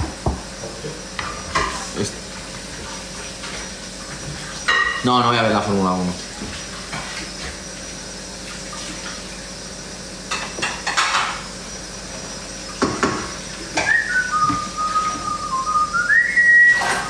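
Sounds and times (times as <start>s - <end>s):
cookware and utensils clattering: 1.2s - 2.0s, 4.6s - 5.4s, 10.3s - 11.4s
person whistling: 13.8s - 17.0s.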